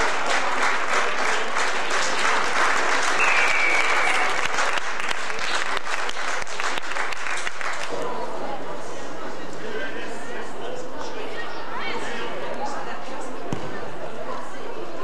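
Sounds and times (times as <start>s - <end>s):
crowd applauding: 0.0s - 8.2s
short whistle: 3.2s - 4.3s.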